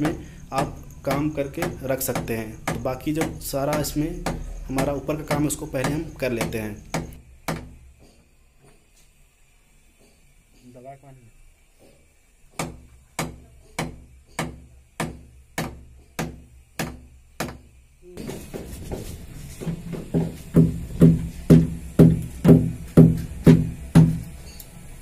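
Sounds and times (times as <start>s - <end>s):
hammer driving nails: 0.0s - 7.8s.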